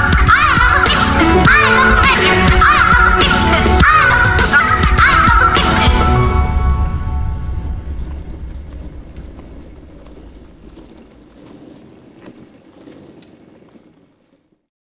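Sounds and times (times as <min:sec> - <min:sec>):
background music: 0:00.0 - 0:10.9
suitcase rolling over pavement: 0:07.0 - 0:14.7.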